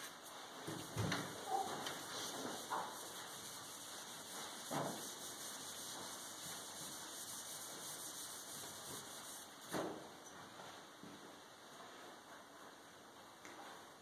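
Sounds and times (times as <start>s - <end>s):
whiteboard eraser rubbing: 0.0s - 9.9s.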